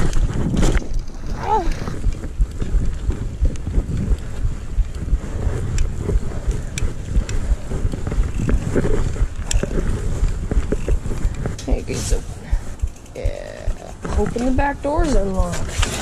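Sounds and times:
wind buffeting microphone: 0.0 - 16.0
sharp clicks: 12.5 - 14.7.

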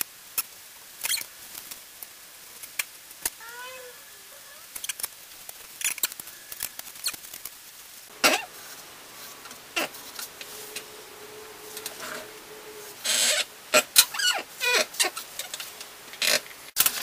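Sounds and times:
paintbrush scraping on cardboard: 8.3 - 13.5.

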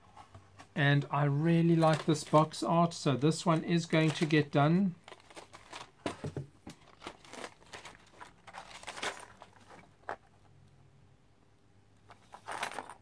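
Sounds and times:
paper crinkling and rustling: 1.6 - 2.7, 3.5 - 10.3, 12.1 - 13.0.

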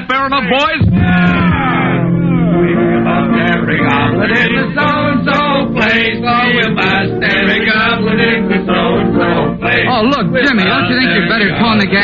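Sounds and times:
men singing and shouting: 0.3 - 12.0.

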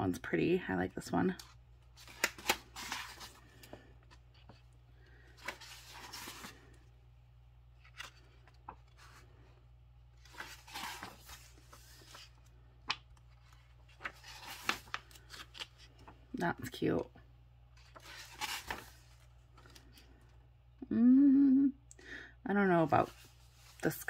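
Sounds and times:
paper pages rustling: 1.4 - 6.8, 7.7 - 9.4, 10.1 - 16.2, 17.8 - 20.3.

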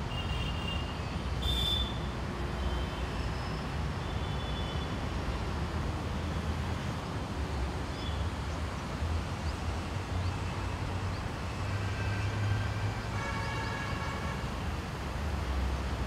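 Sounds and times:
city traffic rumble: 0.0 - 16.0
distant vehicle horn: 11.8 - 14.5.

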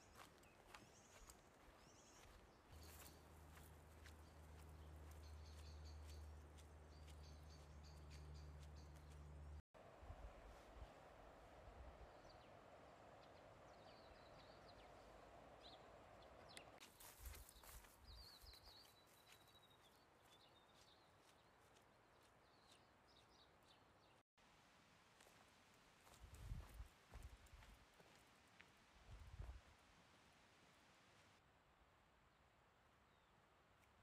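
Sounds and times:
soft footsteps on grass: 0.0 - 9.6, 16.8 - 23.8, 25.0 - 29.6.

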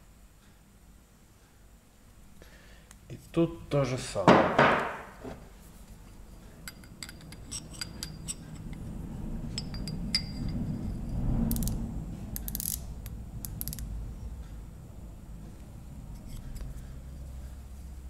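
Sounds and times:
low hum: 5.7 - 18.0.

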